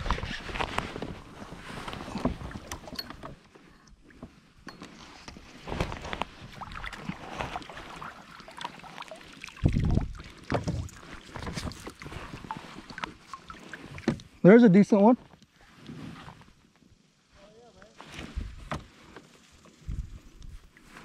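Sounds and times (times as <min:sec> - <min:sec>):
water splashing and sloshing: 0:00.0 - 0:14.5.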